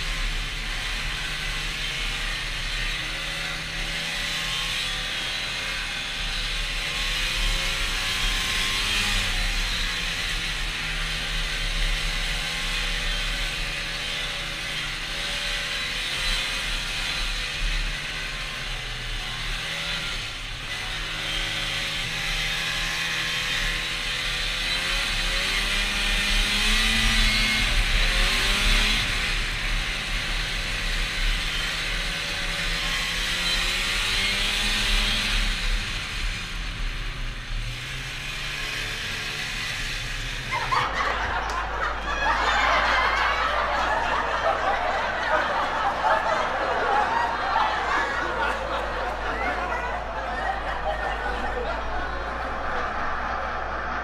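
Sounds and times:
snowmobile engine running: 0:00.0 - 0:54.0.

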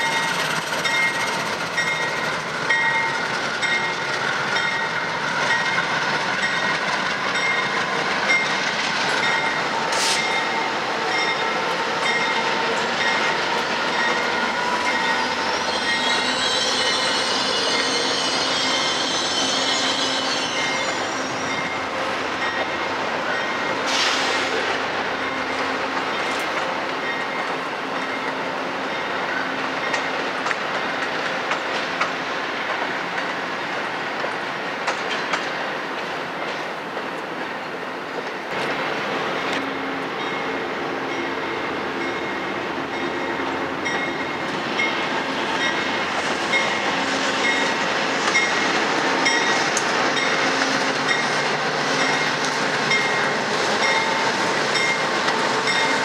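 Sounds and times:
train rumbling past: 0:00.0 - 0:56.0
train wheels clicking over rail joints: 0:29.7 - 0:37.3.

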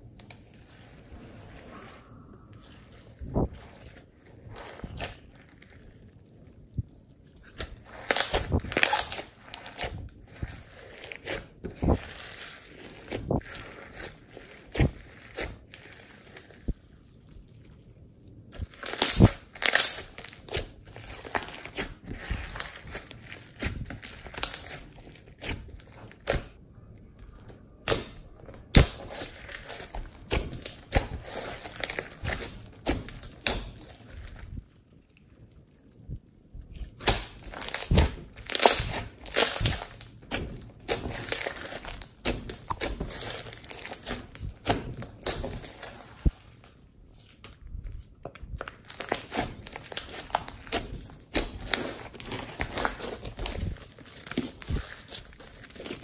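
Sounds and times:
slime squelching by hand: 0:00.0 - 0:56.0
foam beads popping and crackling: 0:07.8 - 0:10.2, 0:18.6 - 0:25.3, 0:36.9 - 0:46.8, 0:48.6 - 0:56.0.

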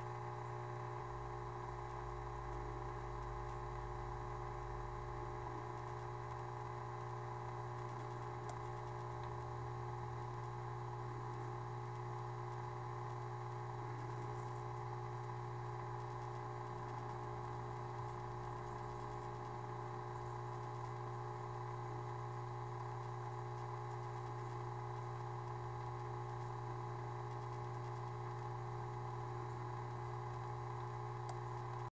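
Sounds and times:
aquarium equipment humming: 0:00.0 - 0:31.9
faint clicks: 0:07.8 - 0:09.4, 0:29.7 - 0:31.9.

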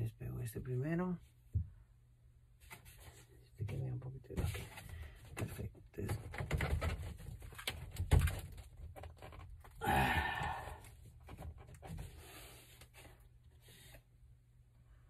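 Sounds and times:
plastic rubbing and scraping: 0:02.6 - 0:09.8, 0:10.8 - 0:14.1
plastic pipe clicks and knocks: 0:05.4 - 0:09.8.

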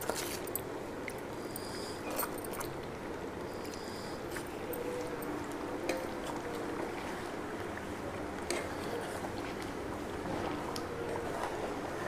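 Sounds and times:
gravy simmering in a pan: 0:05.3 - 0:12.0.

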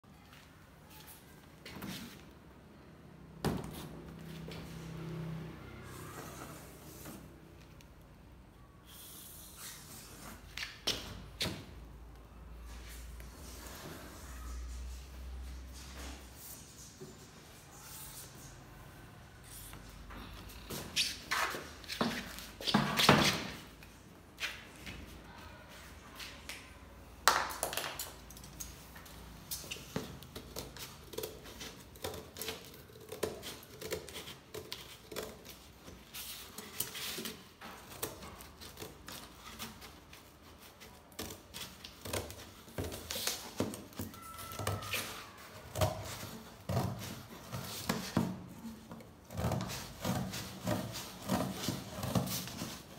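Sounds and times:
scissors cutting cardboard: 0:29.9 - 0:52.9.

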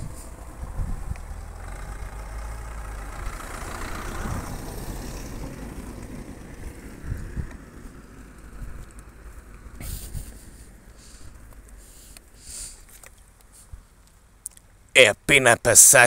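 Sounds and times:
vehicle rushing past: 0:00.0 - 0:11.4
vehicle engine humming: 0:00.0 - 0:16.0.

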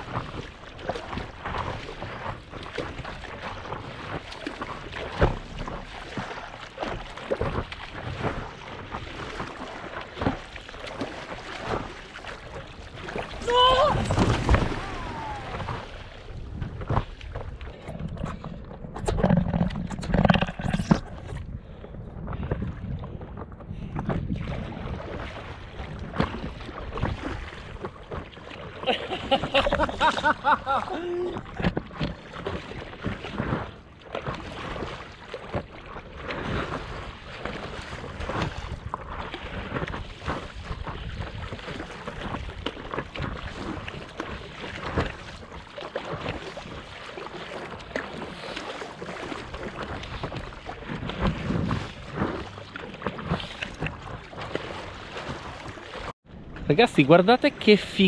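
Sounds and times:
waves slapping against paddleboard: 0:00.0 - 0:58.0
wind rumbling on microphone: 0:12.7 - 0:45.5, 0:49.0 - 0:58.0.

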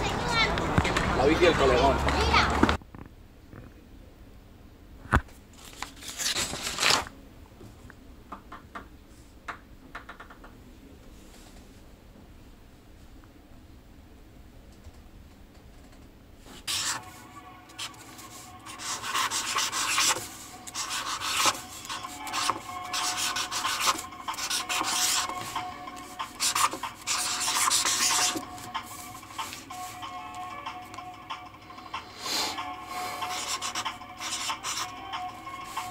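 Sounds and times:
marker scratching on paper: 0:16.6 - 0:30.0, 0:33.2 - 0:34.9.

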